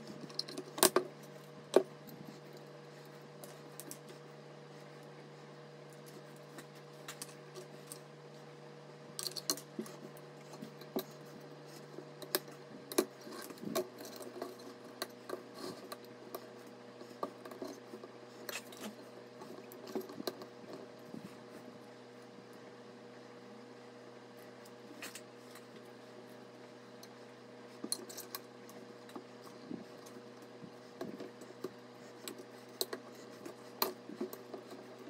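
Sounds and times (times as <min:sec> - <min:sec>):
plastic fans clicking and rattling: 0:00.0 - 0:04.2, 0:09.1 - 0:21.7, 0:24.5 - 0:35.0
steady low hum: 0:00.0 - 0:35.0.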